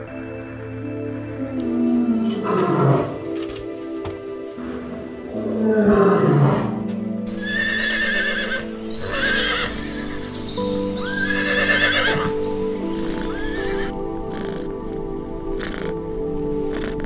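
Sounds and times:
background music: 0.0s - 17.0s
horses whinnying: 2.1s - 3.4s, 5.3s - 10.2s, 11.0s - 14.8s, 16.7s - 17.0s
falling animal call: 12.9s - 14.7s.

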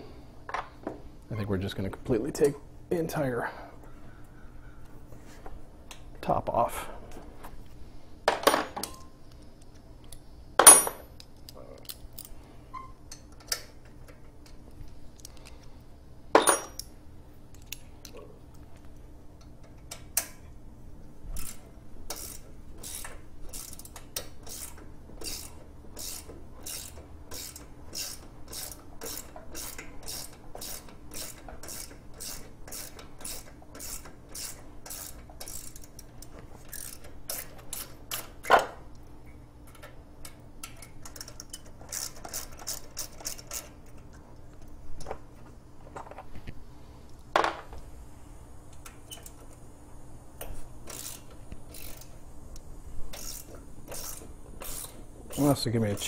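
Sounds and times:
metal tools clanking: 16.4s - 16.8s
ratchet wrench clicking: 21.4s - 38.4s, 39.7s - 44.0s, 50.4s - 52.2s, 53.1s - 55.4s.

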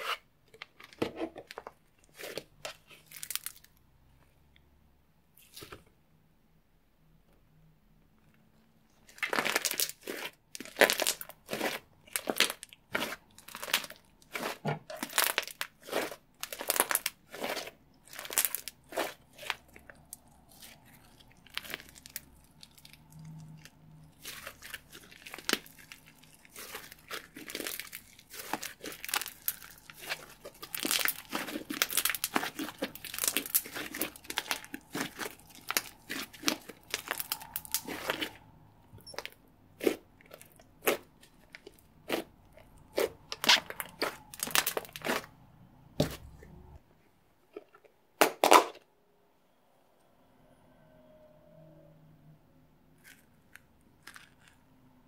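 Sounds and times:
slime crackling and popping: 2.1s - 3.8s, 9.1s - 38.4s, 39.0s - 45.4s.

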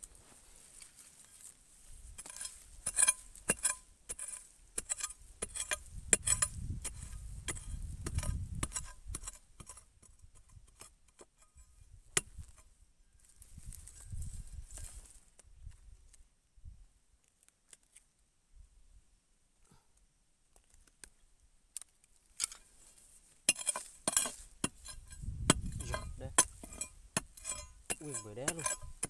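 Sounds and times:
digging tool striking soil: 2.1s - 12.7s, 23.4s - 29.0s.

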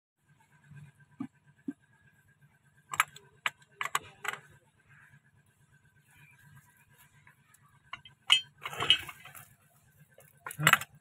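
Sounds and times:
metal scraping clatter: 7.8s - 9.6s
wrench clinking on metal: 7.9s - 9.4s.

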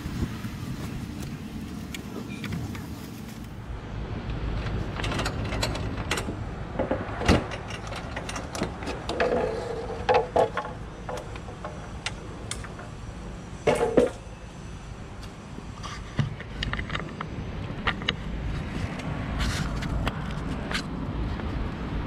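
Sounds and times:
steady low rumble: 0.0s - 9.1s
metal parts knocking and rattling: 4.6s - 13.0s, 13.6s - 14.2s.

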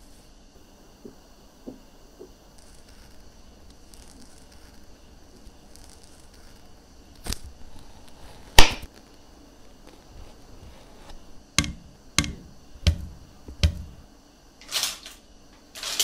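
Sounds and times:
peeler scraping fruit skin: 2.6s - 8.6s.

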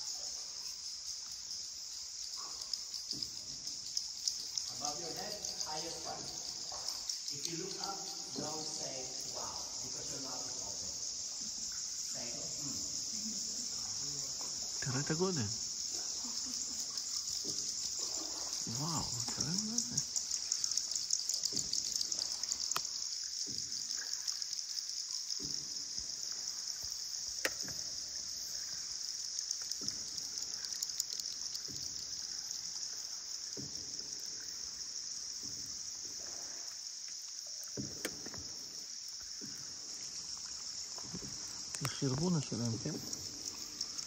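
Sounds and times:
steady high-pitched hiss: 0.0s - 44.0s.

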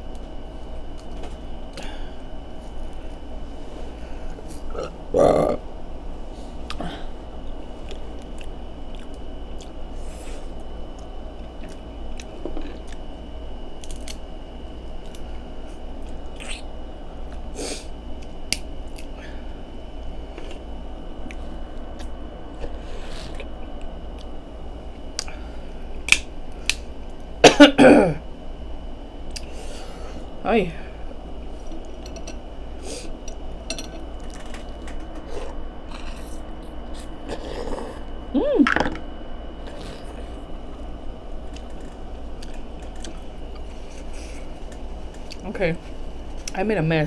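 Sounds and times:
faint electrical hum: 0.0s - 47.0s
wet mouth eating noises: 16.1s - 16.7s, 22.0s - 23.5s.

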